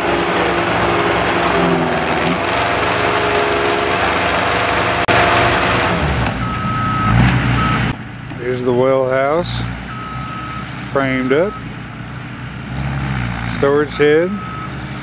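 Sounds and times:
machine engine running under load: 0:00.0 - 0:07.0.

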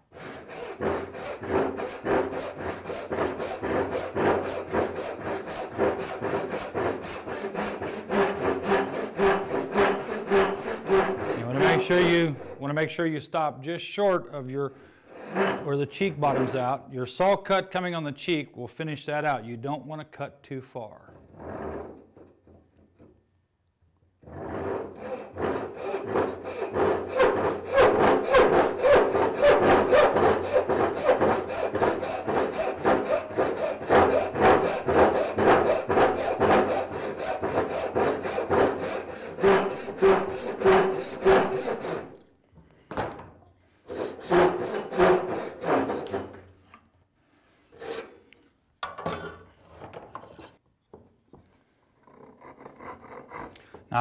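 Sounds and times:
handsaw ripping wood: 0:00.1 - 0:12.6, 0:24.2 - 0:42.3, 0:43.9 - 0:46.5.

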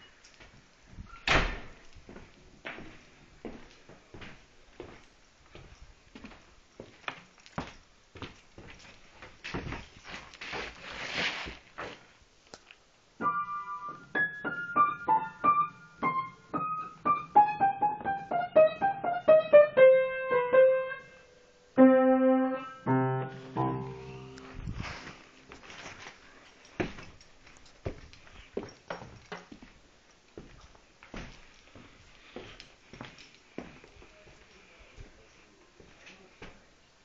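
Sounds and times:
rustling: 0:00.0 - 0:12.9, 0:23.4 - 0:29.3
piano music: 0:13.2 - 0:25.5.

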